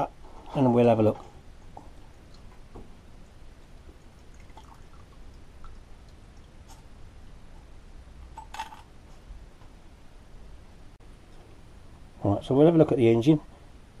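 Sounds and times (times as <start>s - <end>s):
liquid dripping and trickling: 1.6s - 7.0s.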